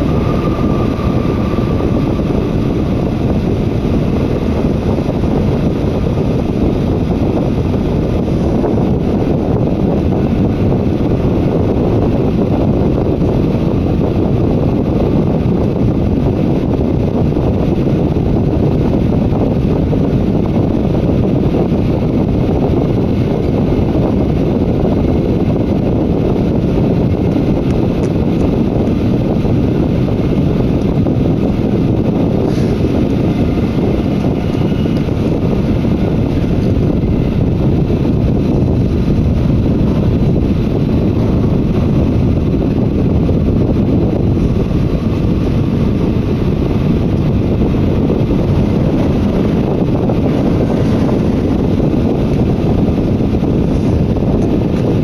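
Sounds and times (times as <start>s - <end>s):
train wheels rumbling on track: 0.0s - 55.0s.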